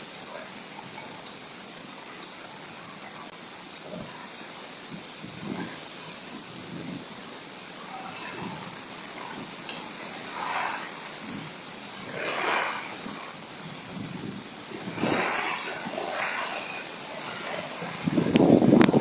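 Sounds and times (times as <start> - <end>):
heavy rain on a deck: 0.0 - 19.0
thunder rumble with cracks: 4.8 - 19.0.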